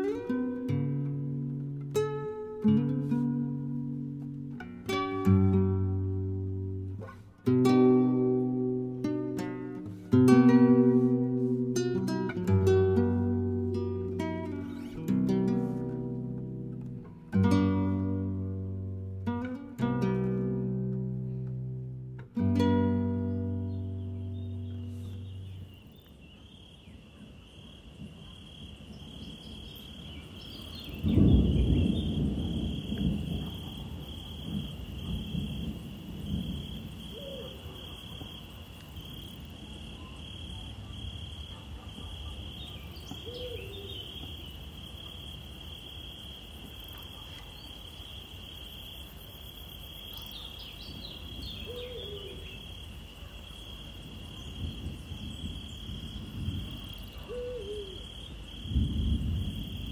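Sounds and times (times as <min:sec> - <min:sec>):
insects chirring: 0:00.0 - 0:59.9
low hoots: 0:37.0 - 0:38.3, 0:41.5 - 0:44.2, 0:51.5 - 0:52.6, 0:56.6 - 0:58.4.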